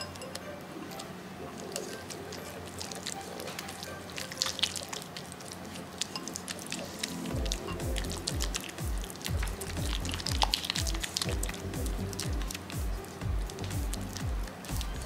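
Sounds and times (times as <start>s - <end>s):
background music with bass: 7.2s - 15.0s.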